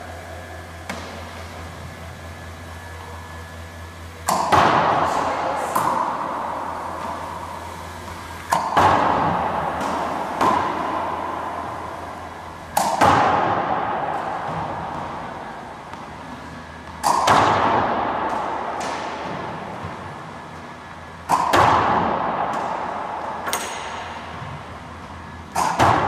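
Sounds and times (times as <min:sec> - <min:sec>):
ball smacking court wall: 0:00.8 - 0:01.4, 0:04.2 - 0:26.0
ball bouncing: 0:00.8 - 0:02.5, 0:04.2 - 0:26.0
ball machine firing cracks: 0:04.2 - 0:20.2, 0:21.2 - 0:26.0.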